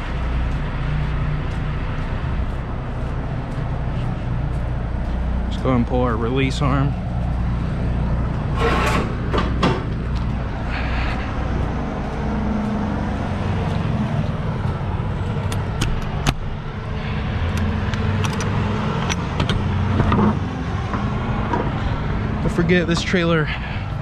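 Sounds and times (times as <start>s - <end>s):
diesel truck engine idling: 0.0s - 24.0s
metal clicks: 17.6s - 20.2s.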